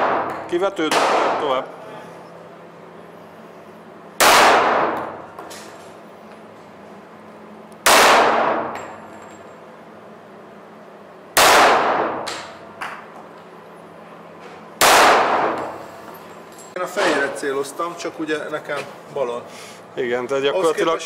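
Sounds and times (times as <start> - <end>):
pistol shots with echo: 0.0 - 1.6, 4.2 - 5.2, 7.8 - 8.8, 11.4 - 12.5, 14.8 - 15.8.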